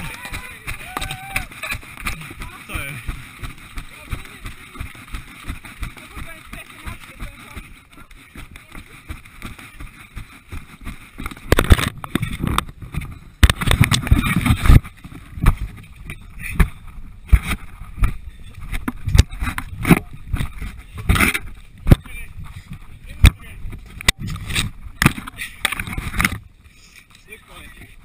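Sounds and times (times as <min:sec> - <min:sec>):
scraping and rubbing on ground: 0:00.0 - 0:28.0
body camera knocks and thumps: 0:11.5 - 0:14.8.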